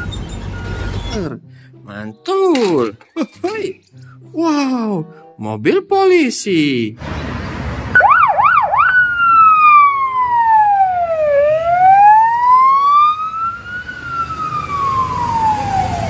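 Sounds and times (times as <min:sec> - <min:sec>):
police siren whooping and wailing: 0:08.0 - 0:16.0.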